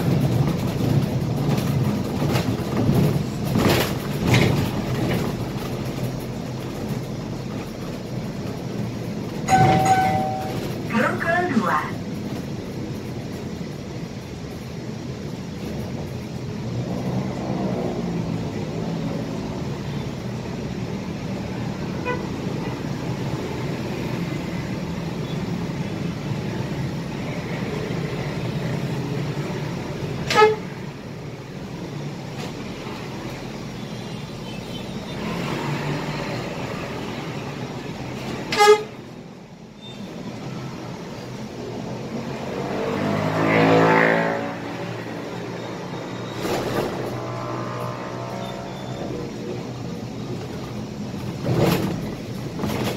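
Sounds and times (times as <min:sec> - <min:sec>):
bus diesel engine running: 0:00.0 - 0:42.5, 0:44.8 - 0:52.9
short high vehicle horn toots: 0:38.5 - 0:38.9.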